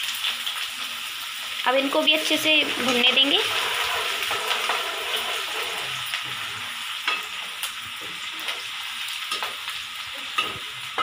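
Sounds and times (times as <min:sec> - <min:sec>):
onion and garlic sizzling in oil: 0:00.0 - 0:11.0
steel ladle scraping a pan: 0:02.6 - 0:07.5.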